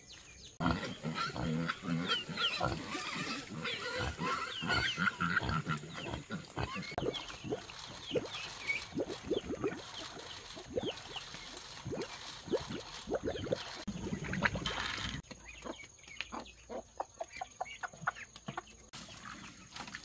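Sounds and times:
pigs grunting: 0.6s - 15.2s.

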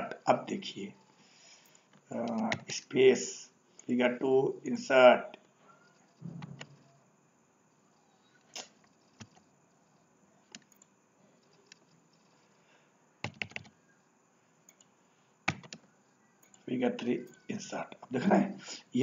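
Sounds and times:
keyboard keystrokes: 13.2s - 13.7s, 15.5s - 15.8s.

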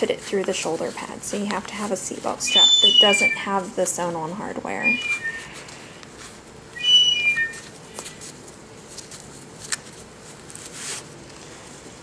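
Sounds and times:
short high chirps: 2.5s - 3.3s, 4.8s - 5.7s, 6.8s - 7.6s.

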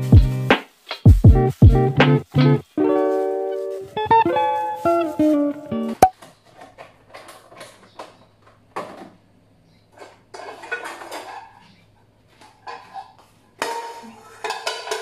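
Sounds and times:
dishes clinking and knocking: 10.0s - 11.6s, 12.4s - 15.0s.

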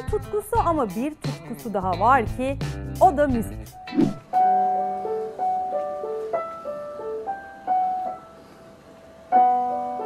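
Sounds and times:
digital piano melody: 3.1s - 10.0s
loud piano chord: 4.3s - 10.0s.

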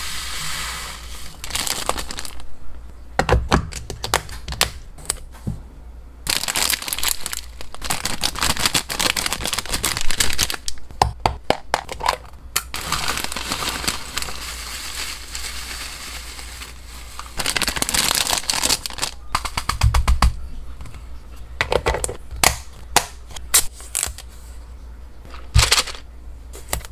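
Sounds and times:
dried snacks rustling into plastic tub: 0.4s - 2.4s, 6.3s - 10.8s, 12.0s - 19.5s
plastic bag crinkling: 1.0s - 2.5s, 6.3s - 10.8s, 11.9s - 19.7s.

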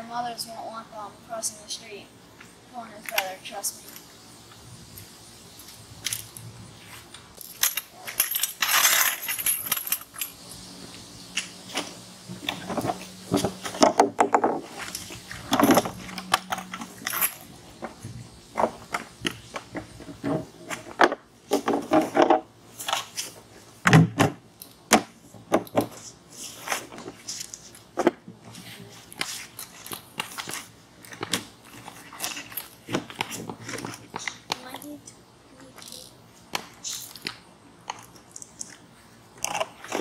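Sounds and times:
lawn chairs clacking and clinking: 5.0s - 35.0s.

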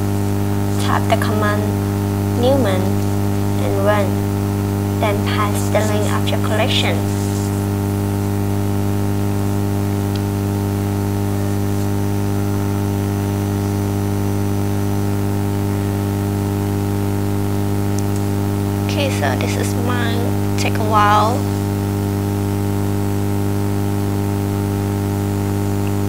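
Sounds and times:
constant hiss: 0.0s - 8.3s
electrical mains hum: 0.0s - 26.0s.

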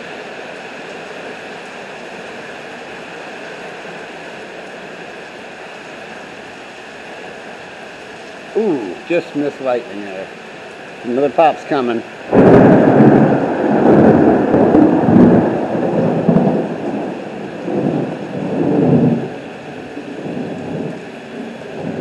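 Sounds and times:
steady rain: 0.0s - 22.0s
thunder crack and rumble: 12.3s - 22.0s.

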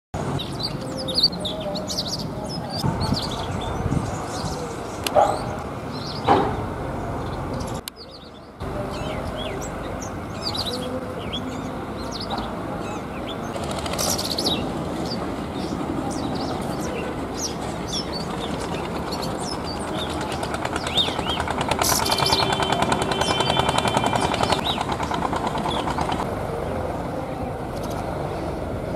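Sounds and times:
bird chirping and whistling: 17.4s - 25.0s.

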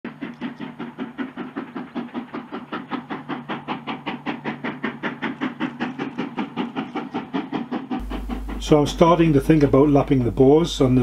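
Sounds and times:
steam locomotive chuffing: 0.0s - 11.0s.

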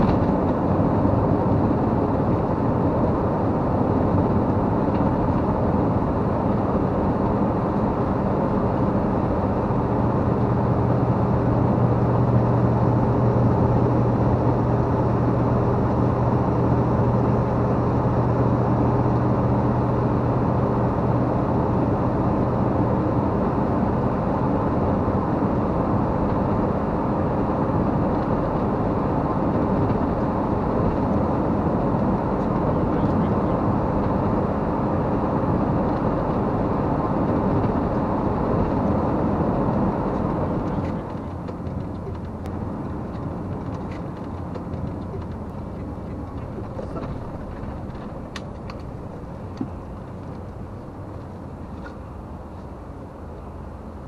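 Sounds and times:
vehicle engine and road noise: 0.0s - 54.0s.

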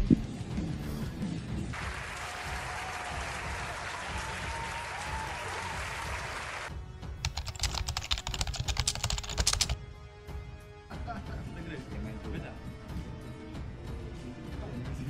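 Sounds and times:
background music with low beat: 0.0s - 1.7s
crowd applauding: 1.7s - 6.7s
typewriter key clicks: 7.3s - 9.8s.

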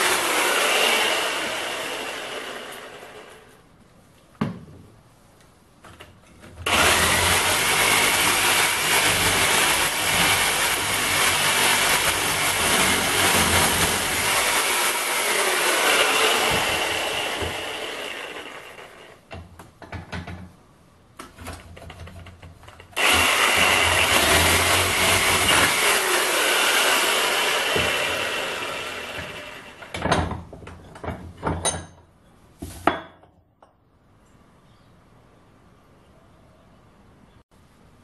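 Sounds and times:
reciprocating saw cutting metal: 6.7s - 19.1s, 23.0s - 29.9s.

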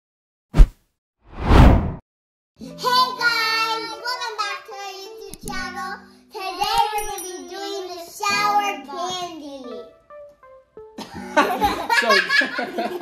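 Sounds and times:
high voice singing jingle: 6.5s - 9.2s.

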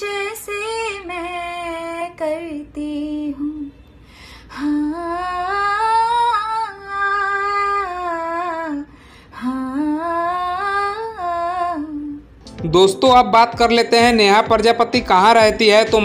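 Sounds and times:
woman singing slow melody: 0.0s - 3.8s, 4.5s - 12.5s
singer breathing: 3.9s - 4.5s, 8.9s - 9.4s.

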